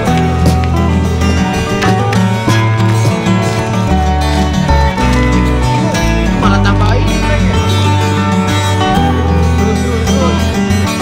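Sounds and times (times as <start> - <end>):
plucked string instruments: 0.0 - 11.0
strong bass line: 4.2 - 10.6.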